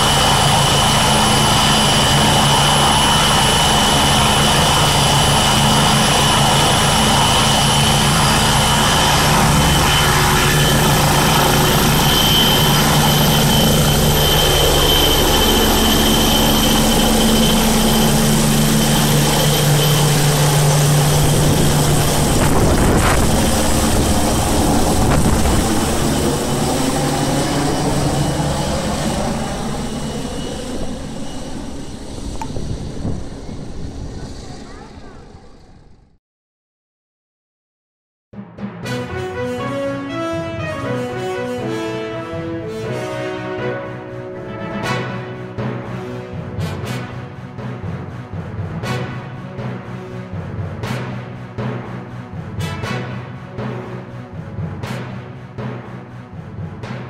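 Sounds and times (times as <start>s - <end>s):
helicopter rotor noise: 0.0s - 36.2s
helicopter turbine whine: 0.0s - 36.2s, 39.2s - 56.9s.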